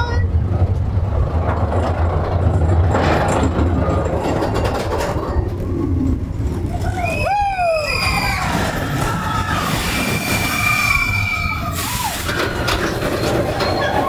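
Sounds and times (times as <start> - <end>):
roller coaster rumbling on track: 0.0 - 14.0
high wheel squeal: 7.0 - 14.0.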